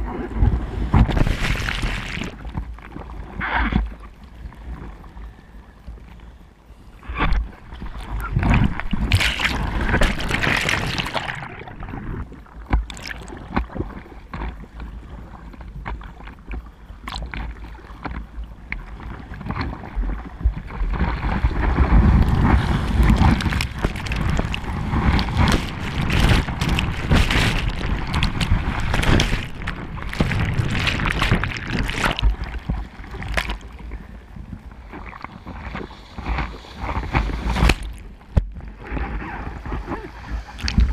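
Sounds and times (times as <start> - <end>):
breaking waves churning: 0.0 - 2.5, 7.9 - 11.9, 20.9 - 33.7
water splashing around camera: 0.0 - 5.0, 7.0 - 40.9.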